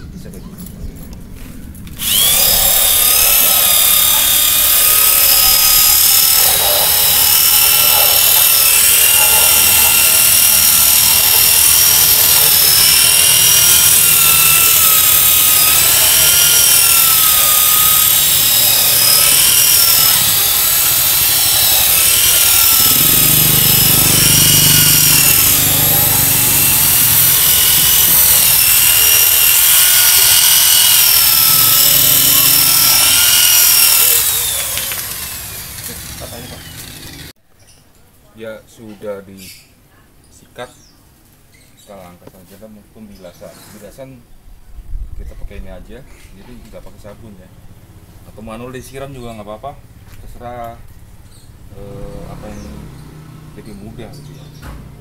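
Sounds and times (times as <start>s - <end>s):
electric drill motor whine: 1.9s - 37.3s.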